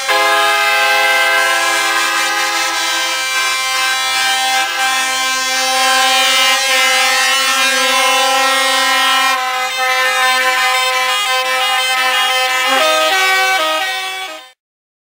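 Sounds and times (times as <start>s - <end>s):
truck air horns blasting: 0.0s - 14.6s.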